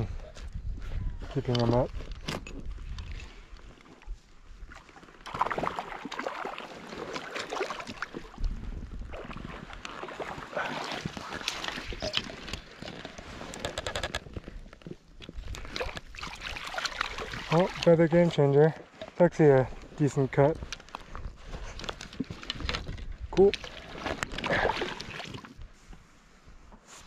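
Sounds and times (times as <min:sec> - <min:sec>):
water splashing: 0:04.8 - 0:13.0, 0:15.6 - 0:18.0, 0:23.4 - 0:25.5.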